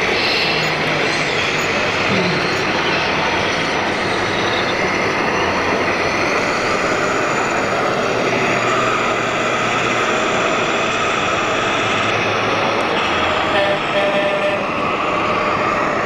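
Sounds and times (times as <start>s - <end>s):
crowded hall din: 0.0s - 5.9s.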